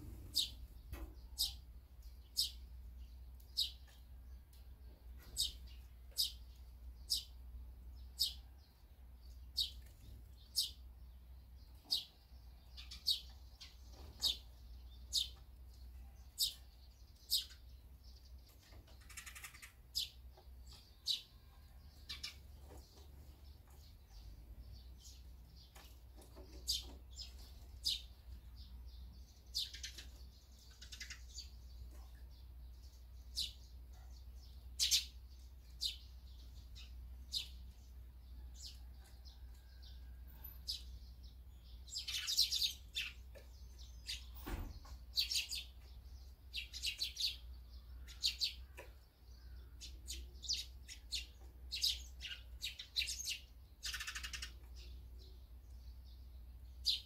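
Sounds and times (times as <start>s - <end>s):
steady low hum: 0.0s - 0.8s
sparrows chirping: 0.0s - 57.0s.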